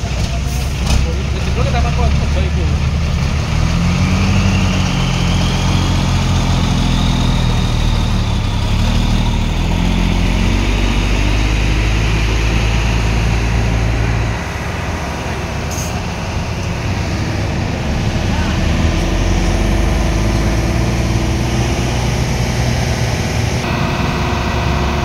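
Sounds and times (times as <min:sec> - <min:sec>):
diesel truck engine idling: 0:05.4 - 0:25.0.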